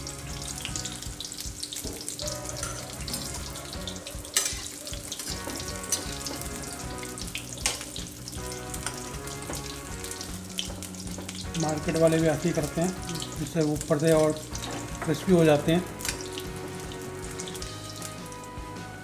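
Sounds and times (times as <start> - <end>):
oil sizzling and crackling: 0.0 - 19.0
spoon knocking against pan: 8.8 - 9.8, 10.6 - 11.4.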